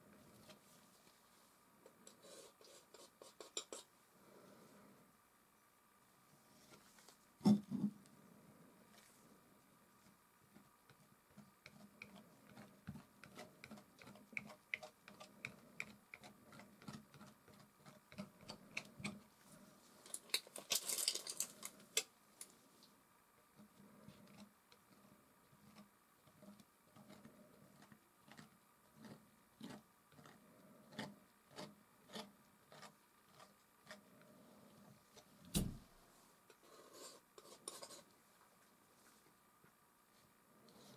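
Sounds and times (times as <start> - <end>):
palette knife scraping canvas: 25.6 - 34.2.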